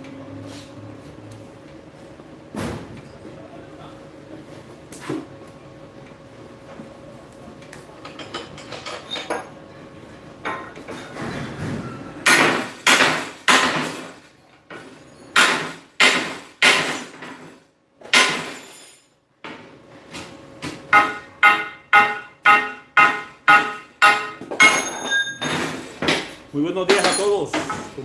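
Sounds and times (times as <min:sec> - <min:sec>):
hammer striking metal: 0:18.1 - 0:18.7, 0:20.9 - 0:26.2.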